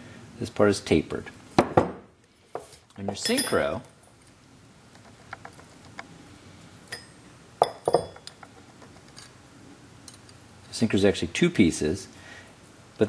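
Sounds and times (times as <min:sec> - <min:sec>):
metal parts clinking: 0:03.2 - 0:03.9, 0:06.9 - 0:09.4.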